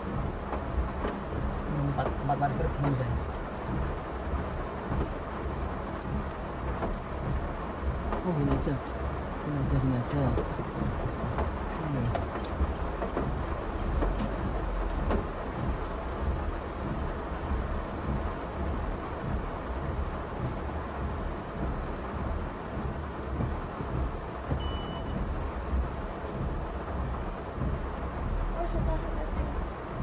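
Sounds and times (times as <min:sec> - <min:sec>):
car cabin engine rumble: 0:00.0 - 0:30.0
short high beep: 0:24.6 - 0:25.2.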